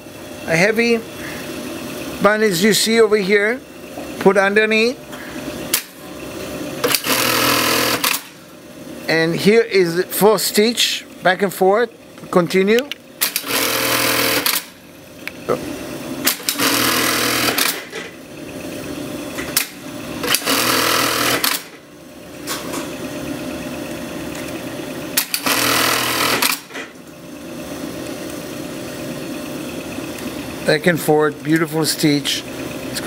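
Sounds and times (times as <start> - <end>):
sewing machine stitching: 6.8 - 8.3, 13.2 - 14.7, 16.2 - 18.1, 20.2 - 21.8, 25.2 - 26.8
sharp machine clicks: 6.8 - 8.4, 12.8 - 14.8, 16.2 - 18.1, 19.6 - 21.8, 25.2 - 26.8.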